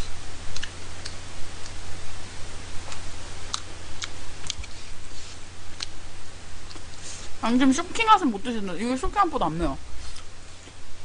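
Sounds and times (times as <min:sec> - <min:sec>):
steady low hum: 0:00.0 - 0:11.0
chewing: 0:00.5 - 0:01.8, 0:02.9 - 0:04.8, 0:06.6 - 0:07.1.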